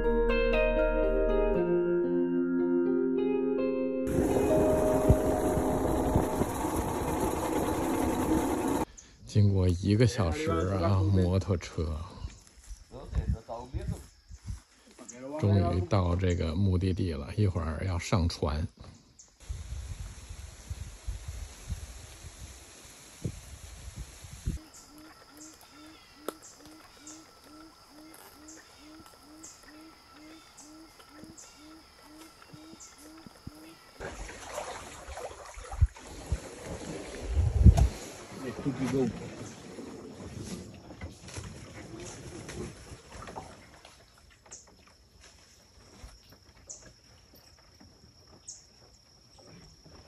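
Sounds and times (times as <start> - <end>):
short low repeated note: 0.5 - 8.6
high-pitched hum: 4.0 - 8.8
high insect drone: 4.1 - 8.9, 24.4 - 34.6
water sounds: 4.1 - 8.9, 29.0 - 44.5.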